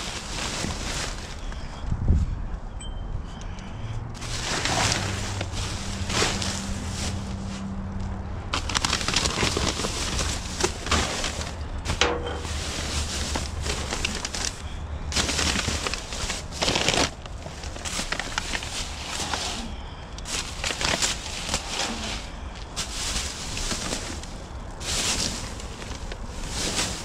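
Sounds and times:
plastic bags crinkling: 0.0s - 1.5s, 8.5s - 27.0s.

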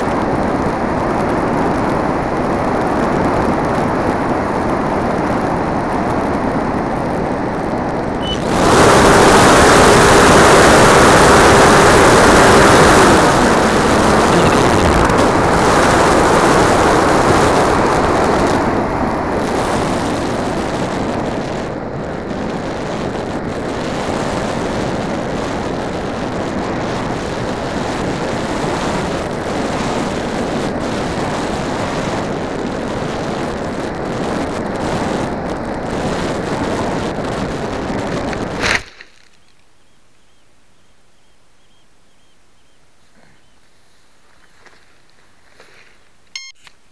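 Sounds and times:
ducted fan whine: 0.0s - 38.6s
rush of air: 2.4s - 33.9s.

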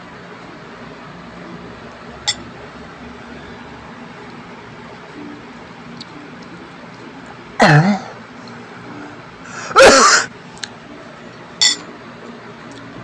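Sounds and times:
man clearing throat: 7.6s - 8.2s, 9.7s - 10.3s
man grunting: 7.6s - 8.2s.

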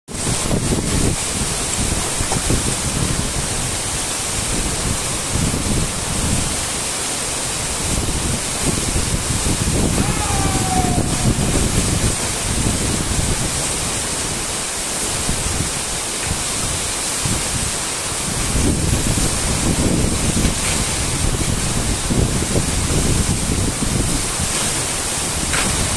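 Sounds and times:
wind buffeting microphone: 0.1s - 6.8s, 7.6s - 25.9s
waterfall rushing onto rocks: 0.1s - 25.9s.

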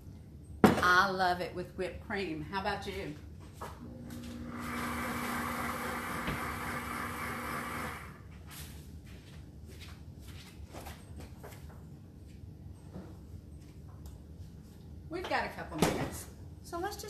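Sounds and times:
blender motor running: 3.8s - 8.2s.

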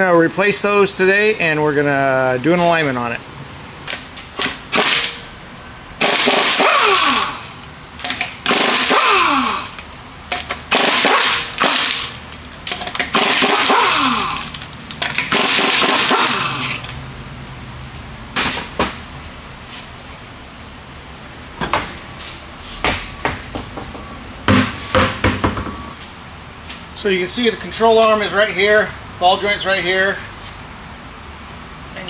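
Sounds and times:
impact wrench rattling with falling whine: 3.8s - 5.3s, 6.0s - 17.0s.

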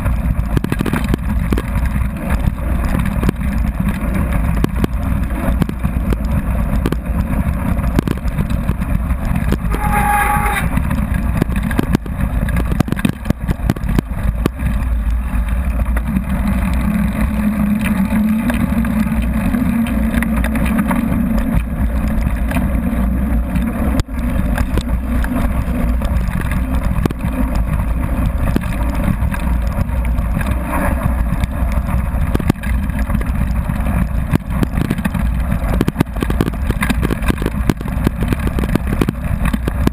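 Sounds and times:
wind buffeting: 0.0s - 22.0s
bike rattles and knocks: 0.0s - 39.9s
bike tyre rumble on gravel: 0.0s - 39.9s
short high-pitched tone: 9.6s - 10.8s.

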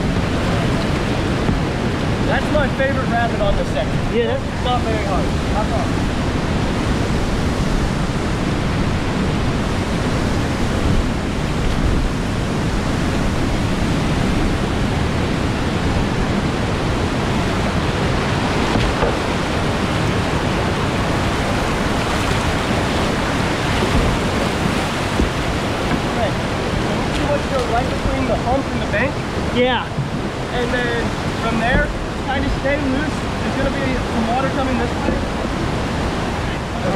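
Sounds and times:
whitewater rapids rushing: 0.0s - 36.9s.

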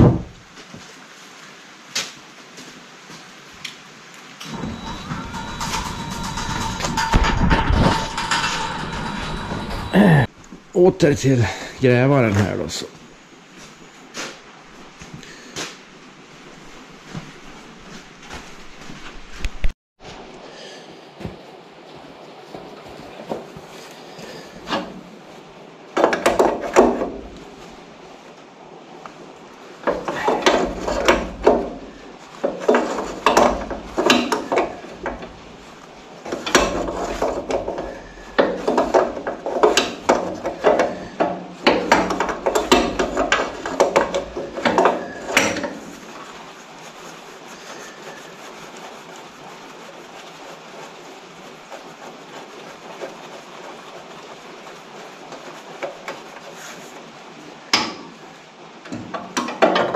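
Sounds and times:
faint background noise: 0.0s - 59.9s
hand tools clicking on metal fittings: 36.3s - 45.8s.

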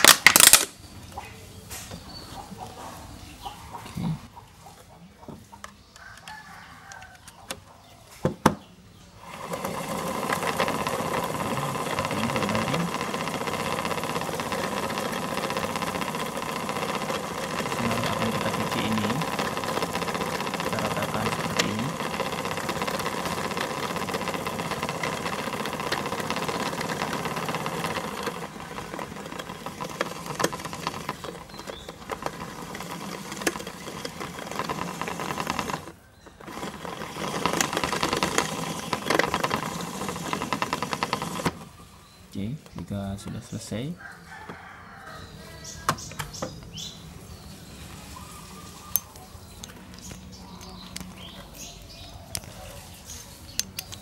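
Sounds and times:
small motor whirring: 9.1s - 42.3s.

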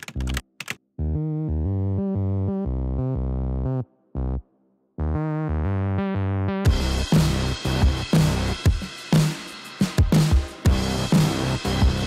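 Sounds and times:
synthesizer chords: 1.0s - 8.7s.

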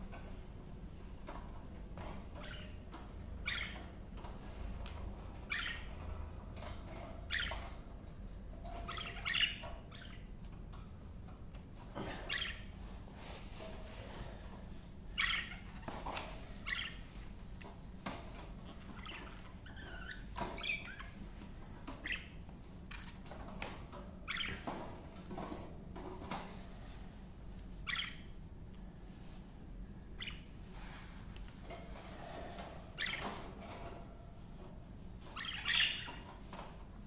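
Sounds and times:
budgerigars chirping: 2.4s - 3.9s, 5.4s - 6.0s, 6.6s - 7.8s, 8.6s - 10.3s, 12.3s - 12.7s, 15.2s - 16.0s, 16.6s - 17.1s, 18.8s - 23.4s, 24.2s - 24.8s, 27.8s - 28.3s, 30.2s - 30.5s, 33.0s - 33.8s, 35.3s - 36.3s.

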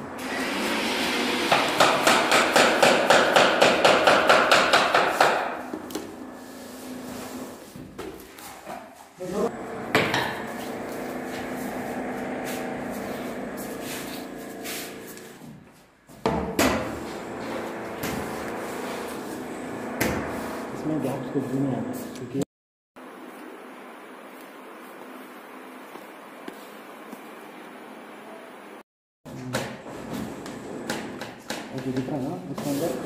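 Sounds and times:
steady hum: 9.5s - 15.4s, 17.0s - 22.2s.

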